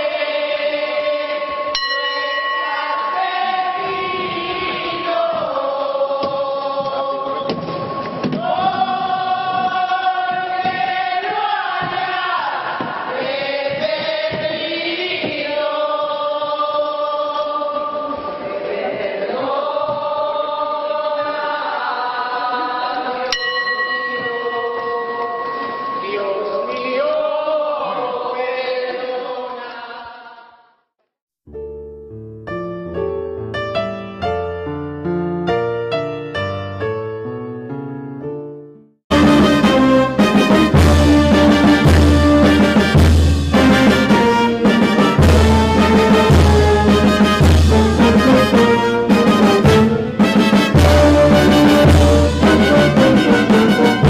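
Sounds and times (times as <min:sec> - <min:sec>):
group chanting in unison: 0:00.0 - 0:23.3, 0:24.5 - 0:30.7.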